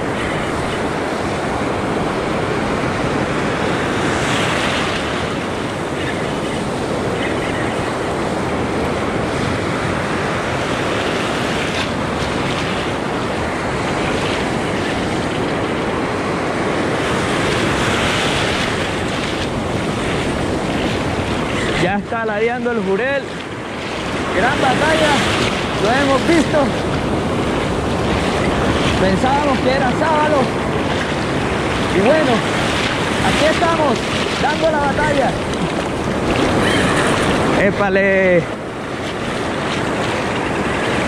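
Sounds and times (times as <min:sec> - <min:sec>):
wind buffeting microphone: 0:00.0 - 0:41.0
surf breaking around legs: 0:10.4 - 0:37.8, 0:38.9 - 0:41.0.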